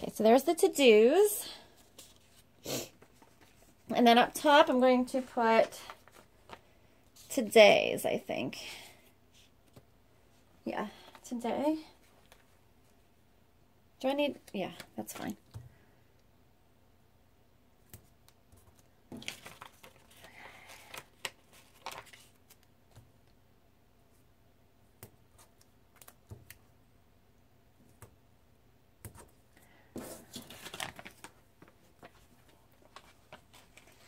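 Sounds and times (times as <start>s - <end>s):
paper stickers rustling and crinkling: 1.7s - 7.5s, 18.0s - 23.1s, 29.1s - 34.0s.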